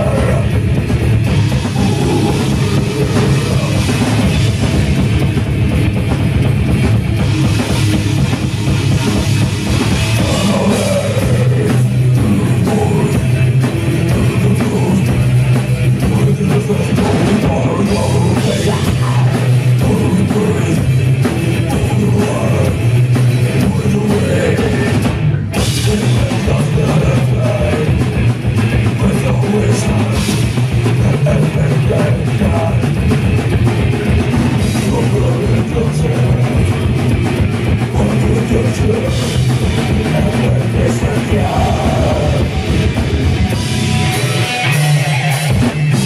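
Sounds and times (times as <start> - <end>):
metal band playing live: 0.0 - 46.0.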